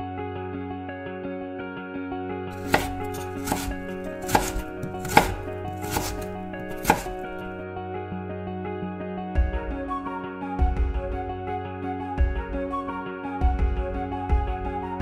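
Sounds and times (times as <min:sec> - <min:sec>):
knife chopping on cutting board: 0:02.6 - 0:07.6
background music: 0:02.6 - 0:15.0.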